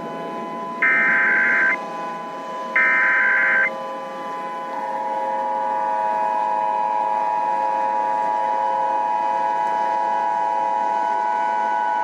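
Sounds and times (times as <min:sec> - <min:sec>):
electronic alarm tone: 0:00.8 - 0:01.8, 0:02.8 - 0:03.7.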